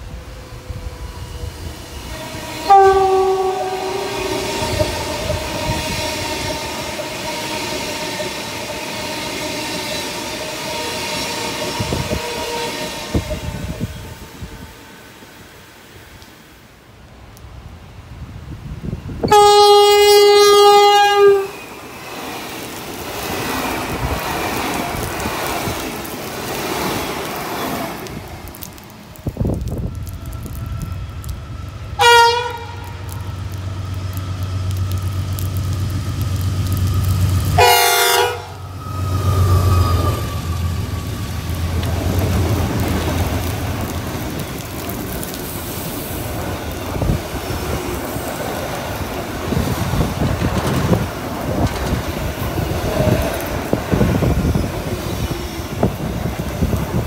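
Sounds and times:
freight train horn: 0:00.2 - 0:14.8, 0:19.2 - 0:21.7, 0:30.4 - 0:35.1, 0:36.8 - 0:41.9
train wagons rolling: 0:19.2 - 0:57.0.

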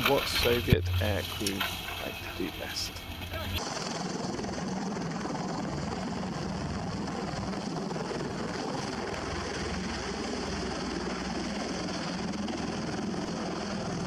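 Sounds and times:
heavy rotor noise: 0:00.0 - 0:14.0.

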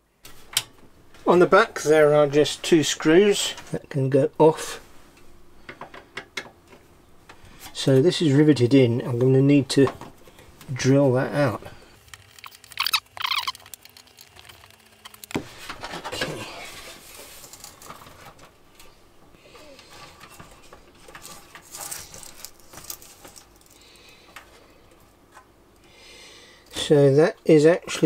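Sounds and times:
short high-pitched sounds: 0:12.4 - 0:13.9
hands handling metal parts: 0:19.8 - 0:24.5.

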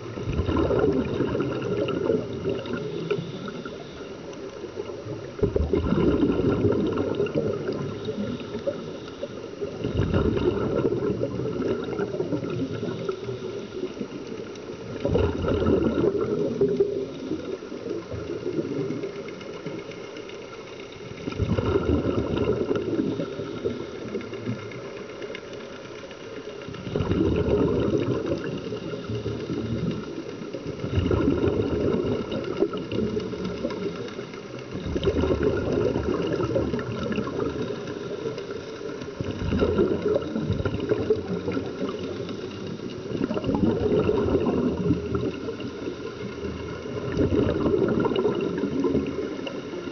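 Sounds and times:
regulator bubbling underwater: 0:00.0 - 0:49.9
underwater water noise: 0:00.0 - 0:49.9.

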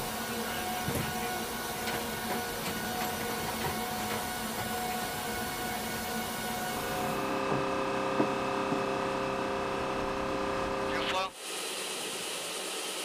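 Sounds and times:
aircraft cabin engine drone: 0:03.4 - 0:11.2.

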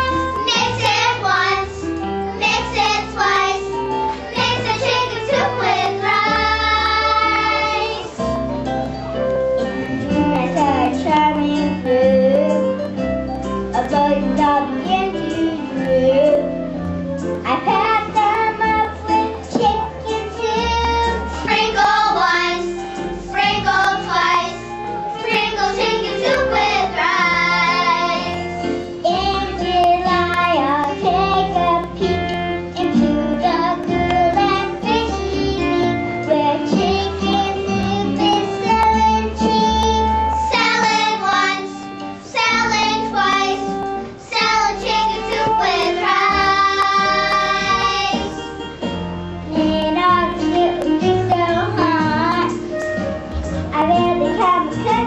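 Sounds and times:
instrumental accompaniment: 0:00.0 - 0:55.0
children singing: 0:02.4 - 0:08.2, 0:19.6 - 0:24.6, 0:25.2 - 0:28.5, 0:32.8 - 0:48.4.

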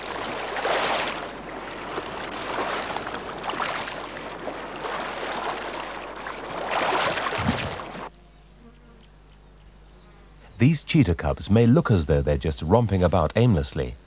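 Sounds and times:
sea water splashing and sloshing: 0:00.0 - 0:08.1.

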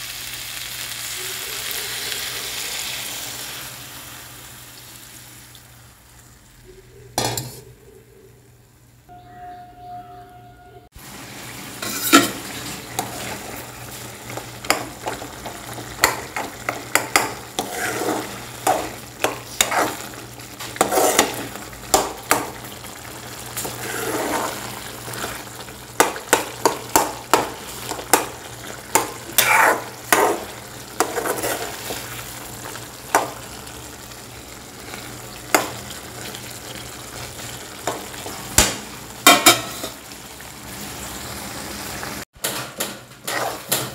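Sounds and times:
metal spoon scraping a pan: 0:11.8 - 0:13.7, 0:16.0 - 0:21.6, 0:23.6 - 0:25.5, 0:28.9 - 0:32.1, 0:42.8 - 0:43.9.

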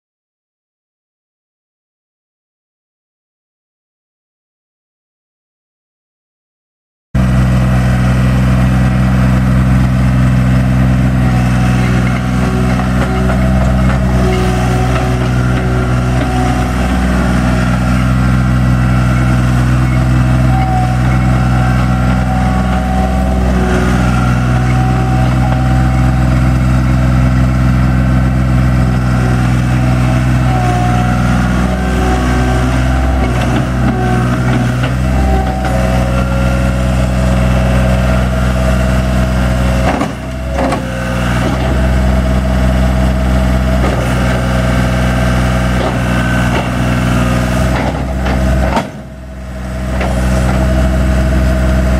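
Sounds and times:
diesel engine running: 0:07.2 - 0:51.9.

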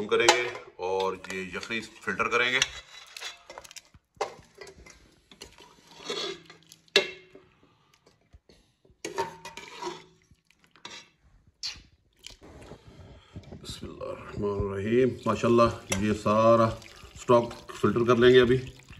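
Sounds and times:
metal ladle clinking and scraping: 0:00.0 - 0:07.4, 0:09.0 - 0:11.2, 0:15.2 - 0:17.7.

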